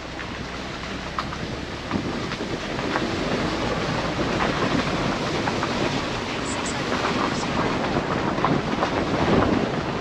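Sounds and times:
tyres rumbling on gravel: 0.0 - 10.0.

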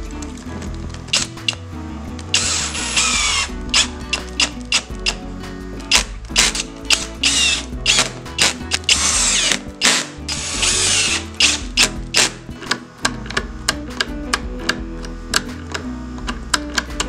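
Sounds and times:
background music with beat: 0.0 - 17.0
ratcheting clicks: 0.9 - 1.6, 2.3 - 17.0
drill driving screws: 1.1 - 1.6, 2.3 - 5.2, 5.9 - 12.8.

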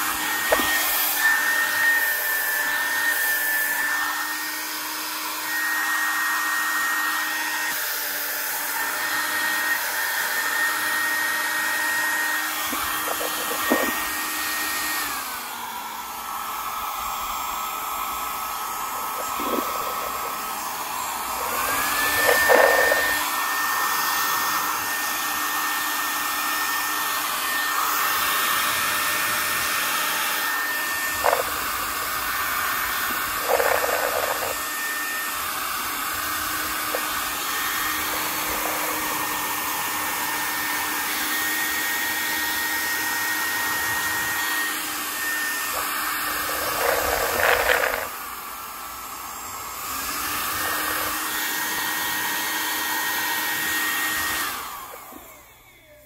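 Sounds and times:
hair dryer running: 0.0 - 56.0
hair dryer handling clicks: 0.4 - 1.1.

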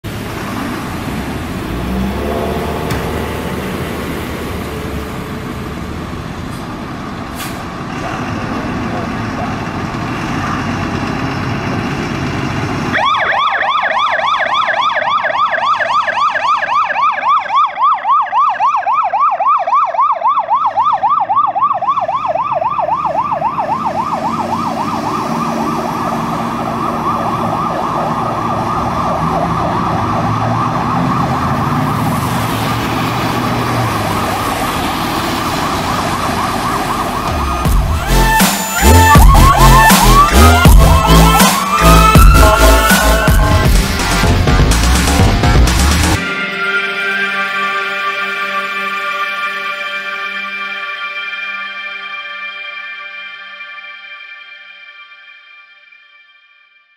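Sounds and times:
truck engine driving past: 0.1 - 13.0, 21.6 - 46.2
fire truck siren yelping: 0.8 - 7.3, 8.0 - 54.1.

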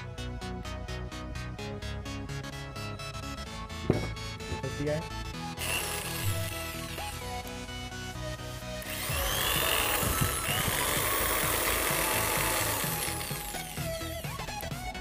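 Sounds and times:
background music: 0.0 - 15.0
electric drill running: 5.6 - 7.6, 8.8 - 14.9.

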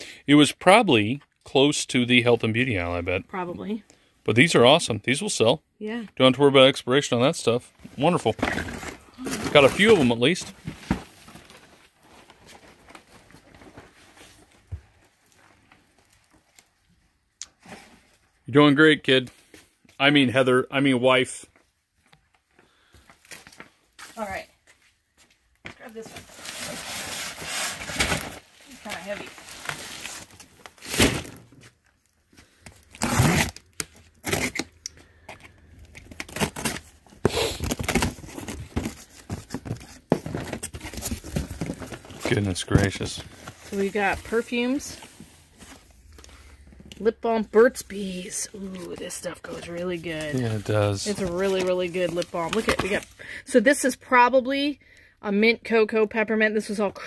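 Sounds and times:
packing tape ripping: 32.8 - 34.8, 35.9 - 38.6
cardboard flaps crinkling: 36.0 - 45.9, 48.5 - 53.1.

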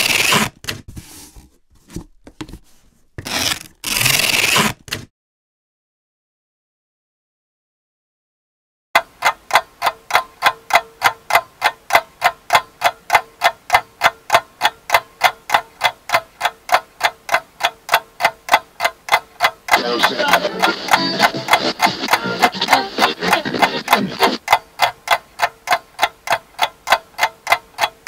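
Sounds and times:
clock ticking: 9.0 - 28.0.

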